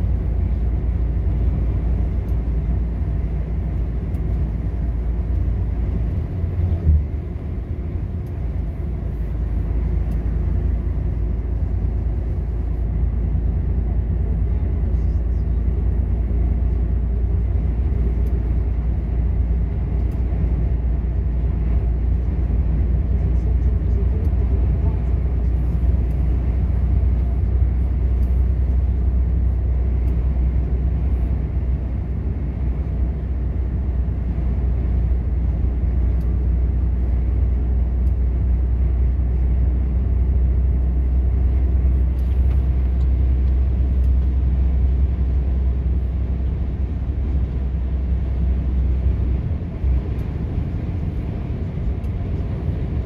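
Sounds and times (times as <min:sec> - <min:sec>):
road rumble: 0:00.0 - 0:53.0
truck engine drone: 0:00.0 - 0:53.0.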